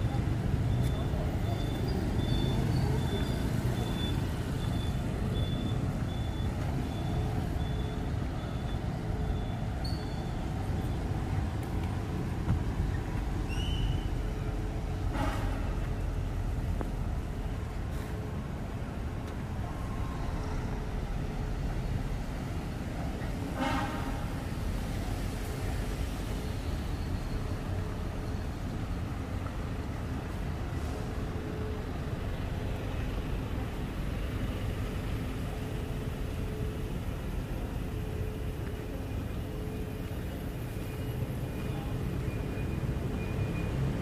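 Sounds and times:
cars and motorbikes rumbling: 0.0s - 44.0s
high electronic beep: 0.7s - 10.5s.

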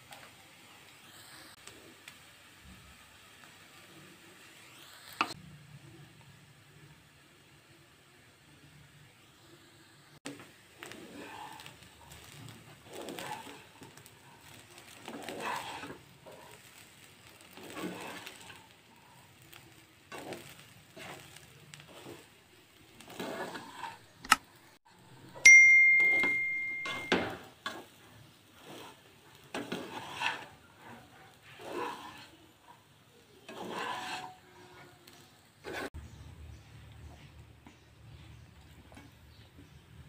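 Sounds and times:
spatula scraping rice in pan: 10.3s - 24.3s, 26.0s - 36.1s
loud bell ding: 25.5s - 27.4s.

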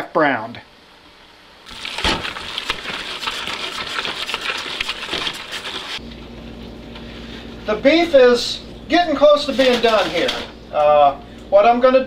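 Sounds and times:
meat crackling in a pot: 1.6s - 6.0s.

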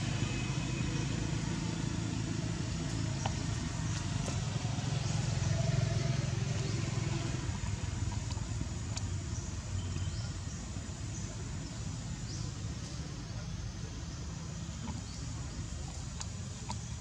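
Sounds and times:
vehicle engine rumble: 0.0s - 17.0s
faint high ticks and chirps: 6.1s - 13.6s.

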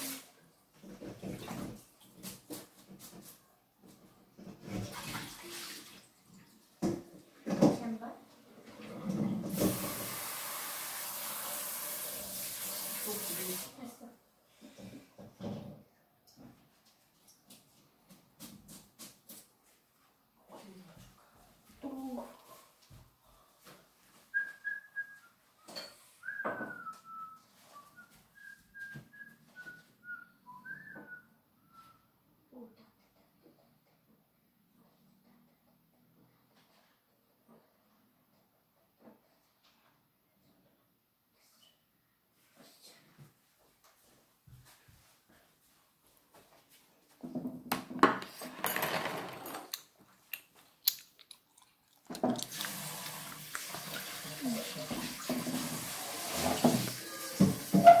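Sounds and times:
person whistling a tune: 24.3s - 32.1s.

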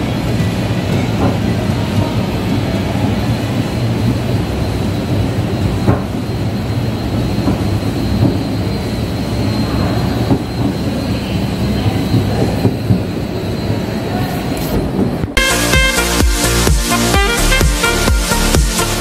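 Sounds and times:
escalator mechanical rumble: 0.0s - 19.0s.

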